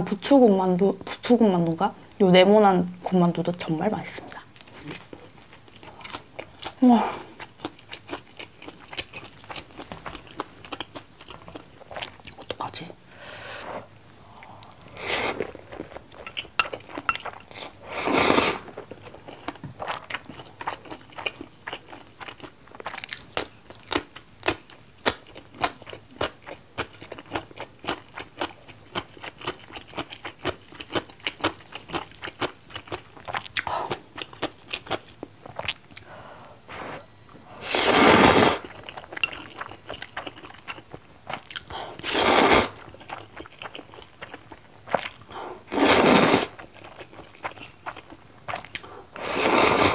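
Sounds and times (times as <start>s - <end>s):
slurping noodles: 17.9s - 18.7s, 36.7s - 38.7s, 42.0s - 42.8s, 45.7s - 46.6s, 49.2s - 49.9s.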